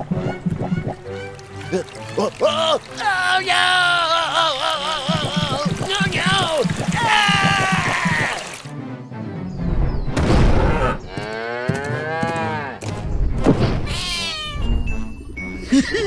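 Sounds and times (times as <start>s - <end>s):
background music: 0.0s - 16.0s
cartoon animal calls: 13.9s - 14.7s.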